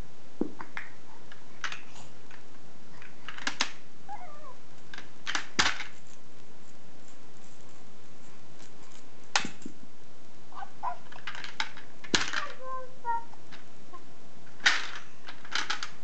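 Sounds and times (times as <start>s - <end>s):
plastic toys clacking: 0.6s - 3.8s, 4.8s - 6.1s, 8.6s - 9.7s, 10.8s - 13.7s, 14.5s - 16.0s.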